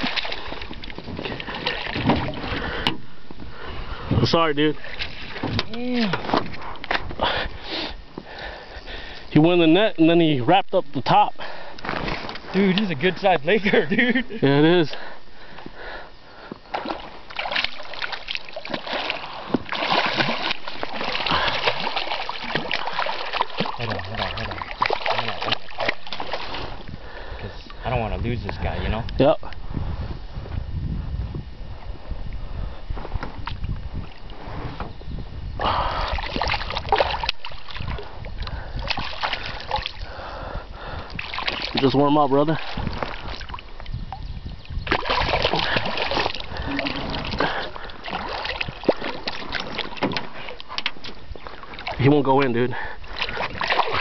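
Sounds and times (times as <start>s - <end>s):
fish splashing in water: 0.0s - 2.6s, 16.7s - 26.8s, 36.0s - 38.1s, 38.8s - 40.2s, 41.1s - 41.8s, 44.8s - 52.0s, 53.0s - 54.0s.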